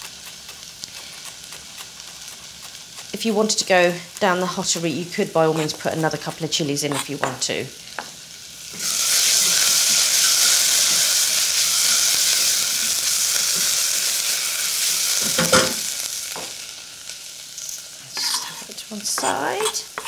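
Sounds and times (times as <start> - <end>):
spatula stirring in saucepan: 0.0 - 14.2, 18.1 - 20.0
onions sizzling in hot oil: 0.0 - 20.0.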